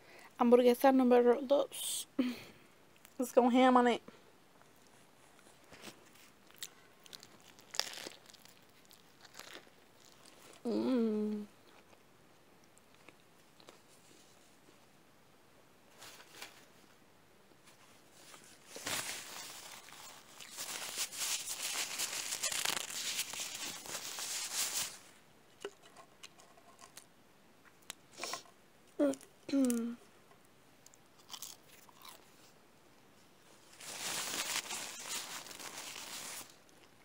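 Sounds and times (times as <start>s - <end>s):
crisp crackling and crinkling: 4.6s - 12.0s, 15.9s - 17.0s, 17.6s - 27.1s, 30.8s - 32.5s, 33.5s - 37.0s
person eating: 6.4s - 13.9s, 30.9s - 32.5s.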